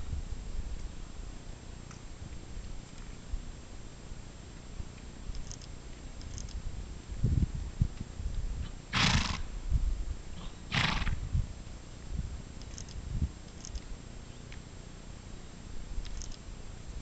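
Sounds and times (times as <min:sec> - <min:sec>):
horse snorting: 0:08.9 - 0:09.5, 0:10.4 - 0:11.2.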